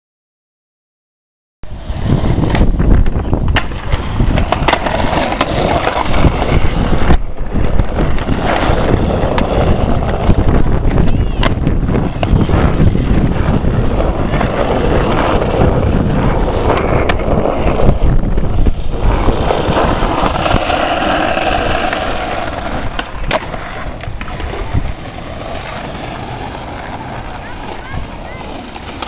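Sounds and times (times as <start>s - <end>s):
skateboard wheels rumbling on asphalt: 1.6s - 29.0s.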